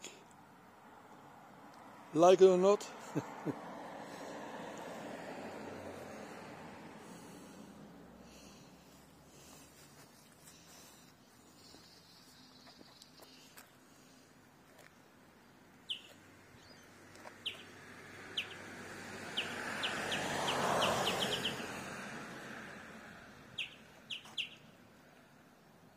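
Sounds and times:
vehicle passing: 0:00.4 - 0:25.5
bird chirping: 0:08.5 - 0:13.8, 0:15.4 - 0:21.8, 0:23.5 - 0:24.8.

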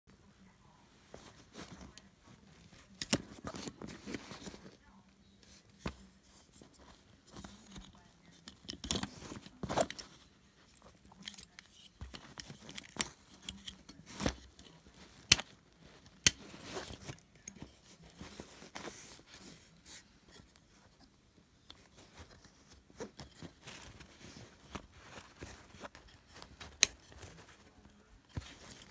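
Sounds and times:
rustling of hands on fabric: 0:11.9 - 0:28.9.

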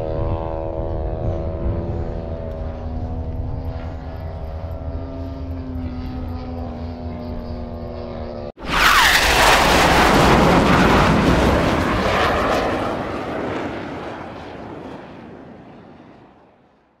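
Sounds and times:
aircraft flyby roar: 0:00.0 - 0:17.0
falling whine: 0:02.0 - 0:14.8.

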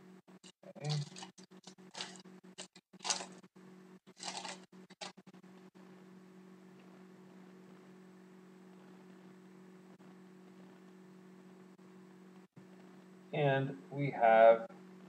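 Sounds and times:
steady low hum: 0:00.0 - 0:15.0
cards rustling: 0:00.8 - 0:03.4, 0:04.2 - 0:05.1
foil wrapper crinkling: 0:00.8 - 0:03.4, 0:04.1 - 0:05.2.

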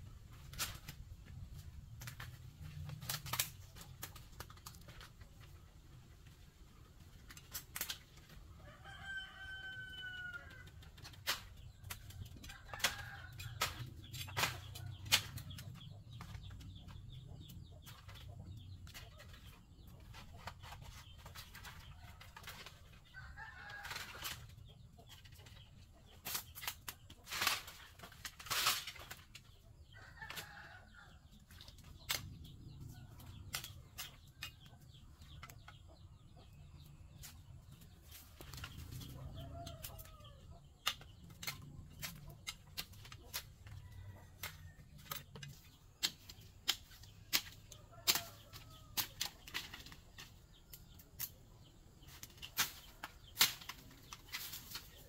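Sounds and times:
chickens clucking: 0:00.0 - 0:55.0
bamboo stems snapping and cracking: 0:00.3 - 0:05.3, 0:07.1 - 0:08.4, 0:10.3 - 0:16.4, 0:26.2 - 0:29.5, 0:31.4 - 0:32.5, 0:33.4 - 0:34.7, 0:37.1 - 0:40.1, 0:40.7 - 0:43.8, 0:44.4 - 0:51.4, 0:52.0 - 0:55.0.

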